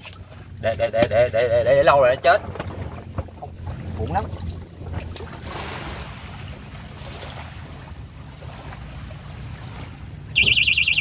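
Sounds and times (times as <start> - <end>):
faint high beeps: 10.3 - 11.0
warbling electronic alarm: 10.3 - 11.0.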